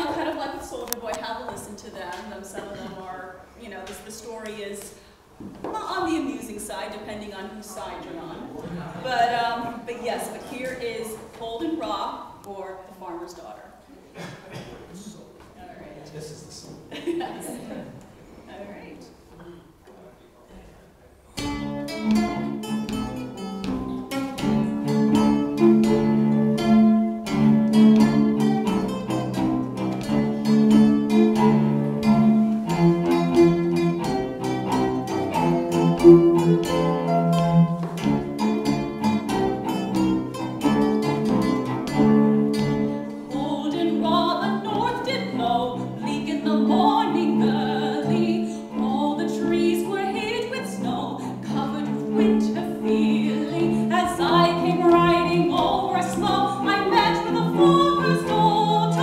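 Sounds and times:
small plucked string instrument: 21.4 - 48.8
woman singing: 43.3 - 59.0.

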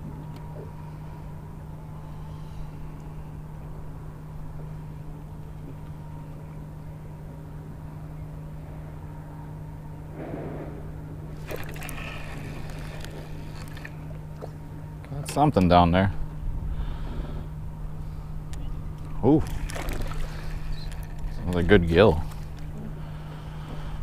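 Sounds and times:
electric trolling motor humming: 0.0 - 24.0.

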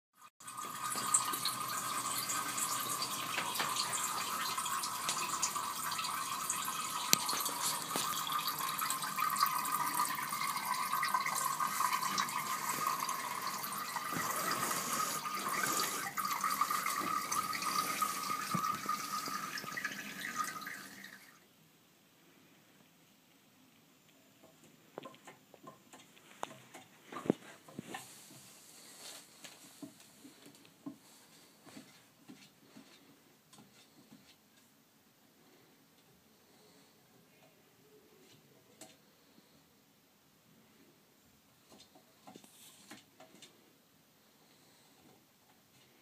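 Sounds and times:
cat urinating into water: 0.4 - 21.4.

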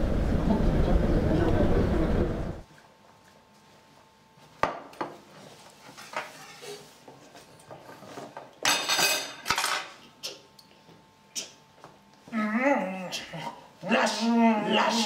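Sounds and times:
cutlery clinking on plate: 8.6 - 10.0.

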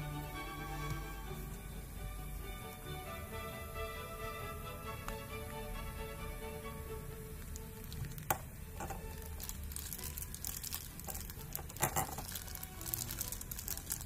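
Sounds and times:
soft background music: 0.0 - 14.0
plastic bag crinkling: 7.6 - 14.0.

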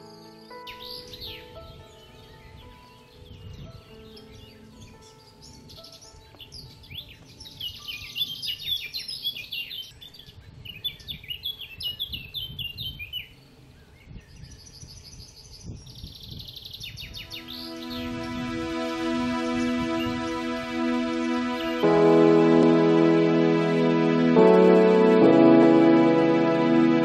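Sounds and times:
soft background music: 0.0 - 9.9, 17.1 - 27.0
songbirds chirping and trilling: 0.0 - 20.9.

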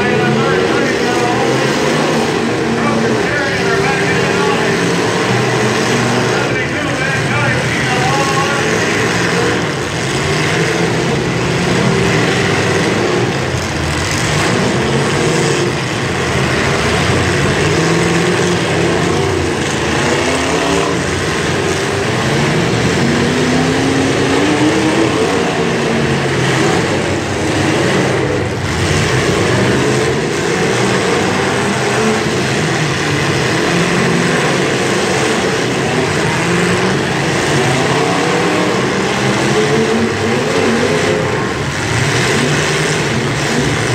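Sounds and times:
car engines revving: 0.0 - 43.9.

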